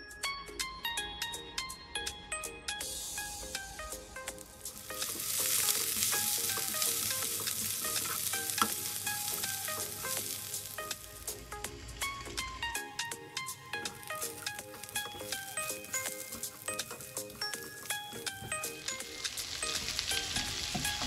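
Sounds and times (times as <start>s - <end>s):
vegetables sizzling in hot oil: 2.8s - 21.0s
spatula stirring in pan: 3.2s - 12.1s.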